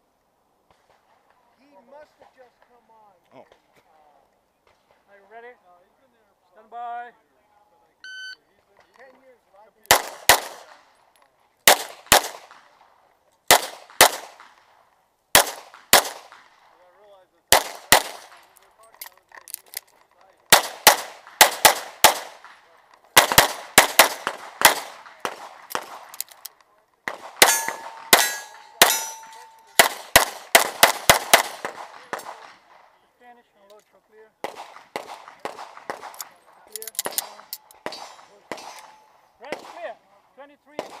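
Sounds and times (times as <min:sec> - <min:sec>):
pistol shots: 0:09.9 - 0:10.9, 0:11.6 - 0:12.8, 0:13.5 - 0:14.7, 0:15.3 - 0:16.7, 0:17.5 - 0:18.5, 0:20.5 - 0:26.3, 0:27.0 - 0:32.8, 0:34.4 - 0:39.9, 0:40.8 - 0:41.0
metallic ringing tone: 0:27.5 - 0:29.8.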